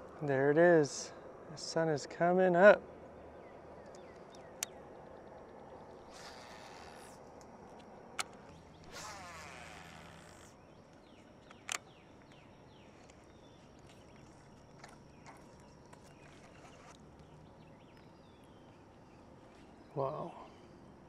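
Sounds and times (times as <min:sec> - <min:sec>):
faint bird chirps: 0:02.8 - 0:07.3, 0:07.9 - 0:21.0
reel spool whirring: 0:06.1 - 0:07.2, 0:08.4 - 0:10.6.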